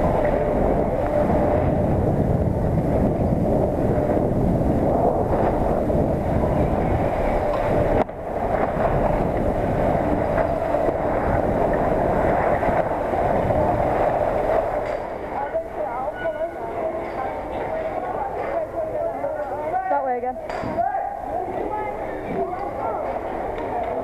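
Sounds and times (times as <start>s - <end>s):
skis scraping over snow: 0.0s - 14.9s.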